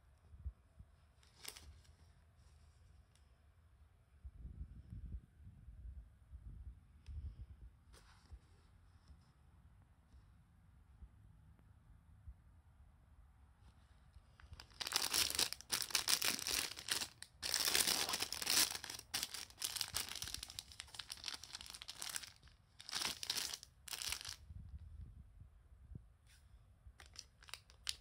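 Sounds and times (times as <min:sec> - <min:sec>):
plastic film wrappers crinkling: 0:01.4 - 0:01.6, 0:14.5 - 0:24.4, 0:27.0 - 0:28.0.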